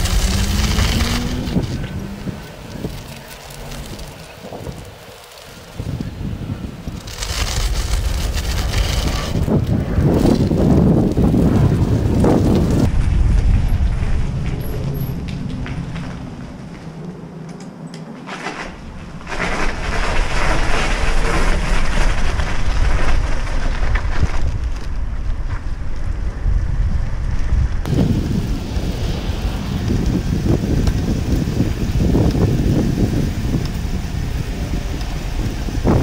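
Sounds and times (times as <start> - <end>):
tyres crunching over gravel: 0.0 - 12.9
wind rumbling on microphone: 0.0 - 36.0.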